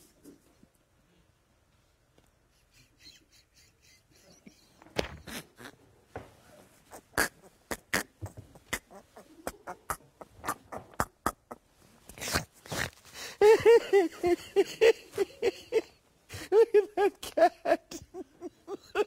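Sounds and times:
man laughing hard: 2.6 - 5.5, 13.4 - 19.0.

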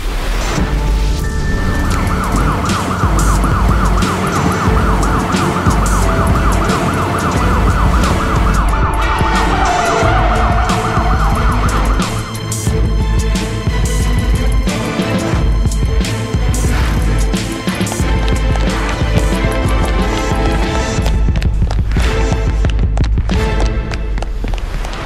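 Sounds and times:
background music with steady beat: 0.6 - 24.6
police siren yelping: 1.2 - 12.7.

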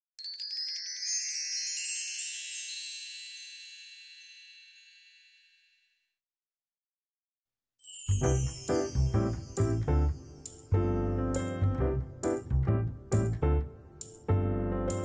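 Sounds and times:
high ringing chime tones: 0.2 - 6.1, 7.8 - 11.2.

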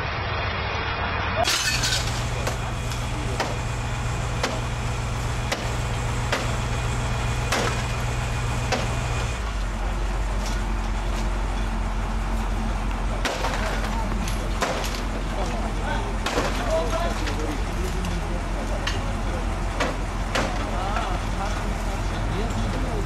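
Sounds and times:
vehicle engine droning: 0.0 - 23.0
sharp knocks and cracks: 3.4 - 3.6, 4.4 - 4.7, 5.5 - 6.6, 7.5 - 8.0, 8.7 - 9.0, 13.2 - 14.0, 14.6 - 15.1, 16.2 - 17.4, 19.8 - 20.7.

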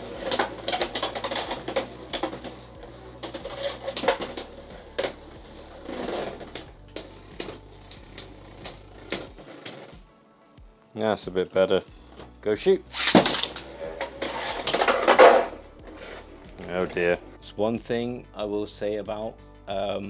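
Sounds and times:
spinning tops clashing: 0.0 - 5.3.

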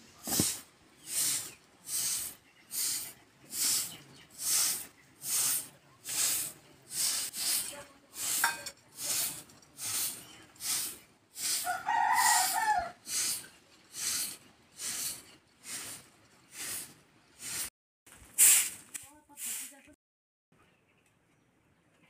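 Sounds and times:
stone roller scraping on stone: 6.1 - 10.9
rooster crowing: 11.6 - 13.0.

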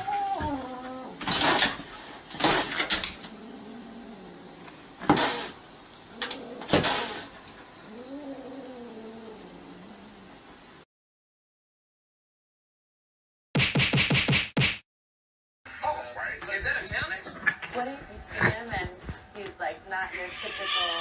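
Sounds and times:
low wavering animal call: 0.0 - 1.2
kitten hissing and spitting: 1.2 - 3.4, 5.0 - 5.6, 6.2 - 7.4.

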